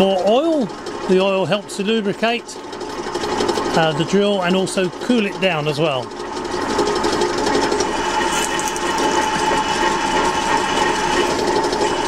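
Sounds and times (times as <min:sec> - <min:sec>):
drill motor hum and whine: 0:03.2 - 0:12.0.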